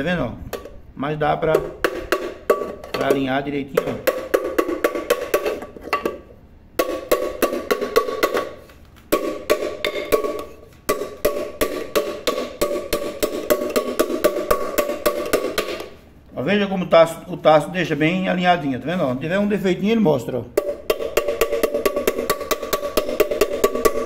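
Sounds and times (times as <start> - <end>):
wood knocking on metal pot: 1.5 - 16.0, 20.6 - 24.0.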